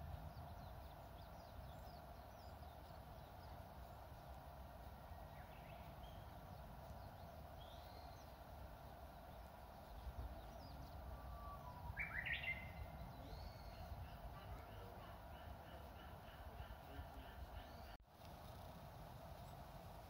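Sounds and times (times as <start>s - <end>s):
warbler singing: 0.0s - 18.0s
steady background hiss: 0.0s - 20.0s
faint high bird chirps: 9.4s - 18.0s.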